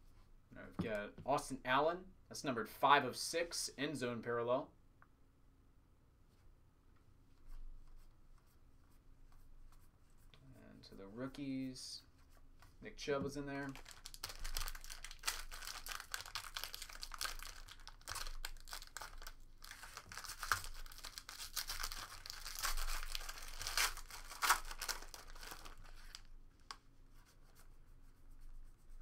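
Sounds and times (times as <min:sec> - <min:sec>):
foil wrapper crinkling and tearing: 0:13.7 - 0:26.3.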